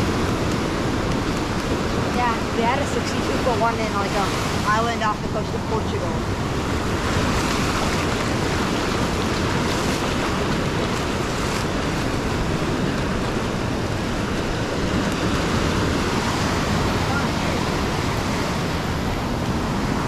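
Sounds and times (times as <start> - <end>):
ocean surf breaking: 0.0 - 20.0
wind on microphone: 0.0 - 20.0.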